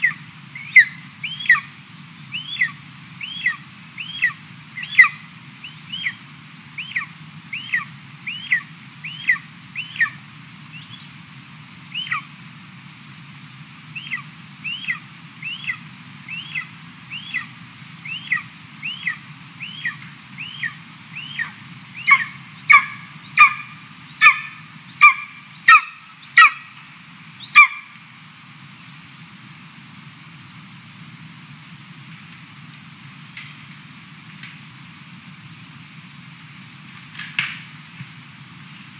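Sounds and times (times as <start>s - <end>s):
eagle chick begging whistles: 0.0s - 1.7s, 2.3s - 6.2s, 6.8s - 11.1s, 11.9s - 12.3s, 14.0s - 26.7s, 27.4s - 27.8s.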